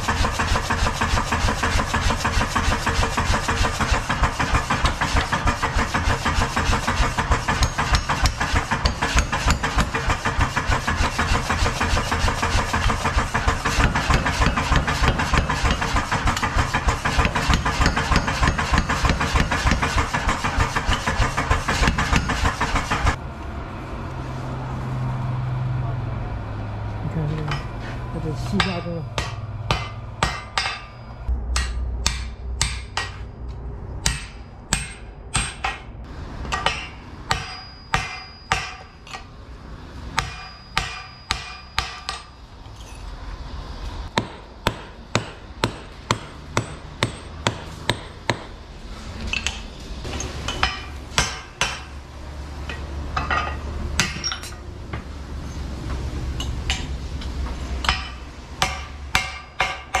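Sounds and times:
hammer striking iron on anvil: 0:00.0 - 0:23.2, 0:28.5 - 0:33.4, 0:34.0 - 0:39.3, 0:40.1 - 0:43.0, 0:44.1 - 0:48.6, 0:50.2 - 0:52.0, 0:52.6 - 0:55.0, 0:56.4 - 1:00.0
low hum: 0:29.0 - 0:36.4.

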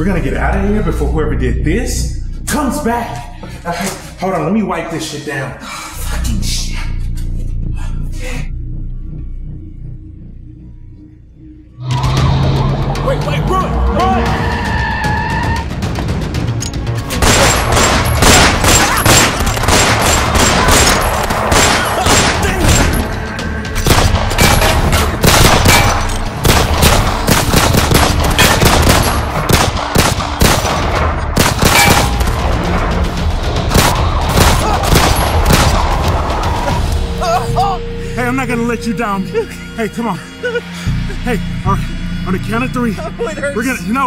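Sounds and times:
film score music: 0:00.0 - 0:44.0
rapid gunfire: 0:17.1 - 0:22.9, 0:25.2 - 0:32.2, 0:33.7 - 0:36.0.

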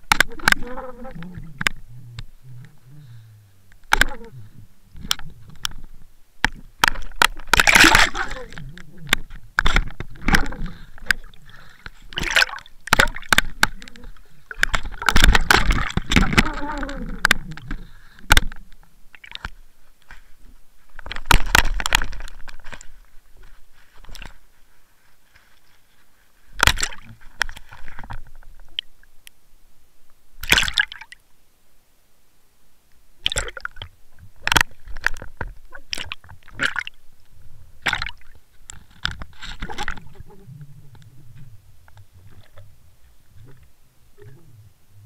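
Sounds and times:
water gushing: 0:07.5 - 0:09.2.

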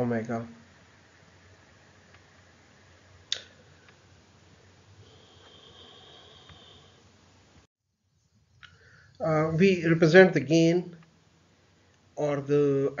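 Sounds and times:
faint high whine: 0:00.0 - 0:13.0
microphone hiss: 0:00.0 - 0:13.0.

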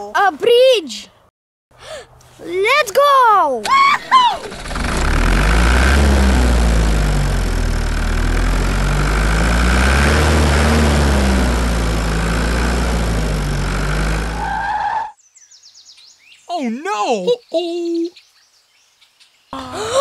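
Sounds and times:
loader tractor engine rumble: 0:03.6 - 0:14.8.

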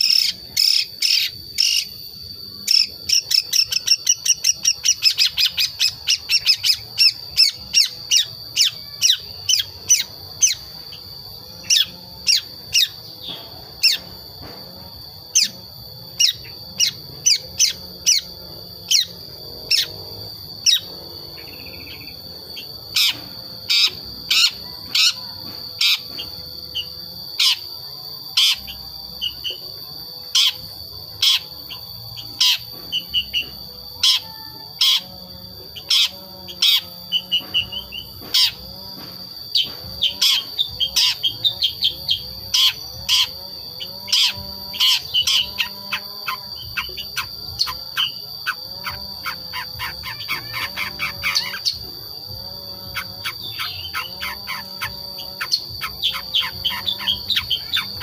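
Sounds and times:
steady high-pitched tone: 0:00.0 - 0:58.0
shrike chattering calls: 0:39.6 - 0:51.8, 0:52.8 - 0:58.0.

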